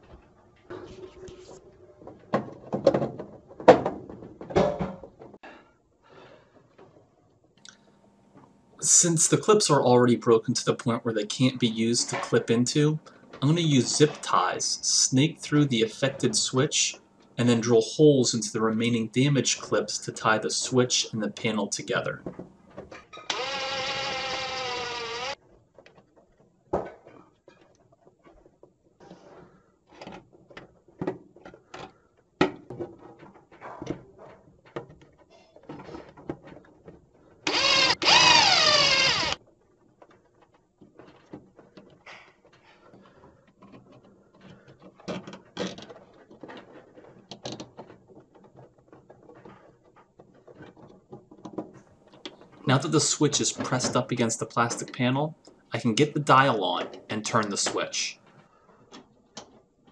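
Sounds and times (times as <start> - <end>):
cordless drill whining: 23.3 - 25.4, 37.5 - 39.4
handling clicks and knocks: 25.4 - 37.5, 39.4 - 52.7, 56.5 - 59.9.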